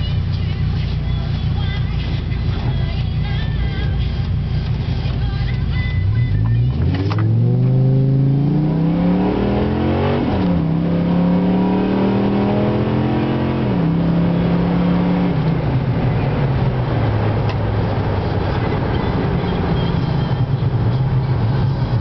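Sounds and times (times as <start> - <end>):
engine under hard acceleration: 0.0 - 22.0.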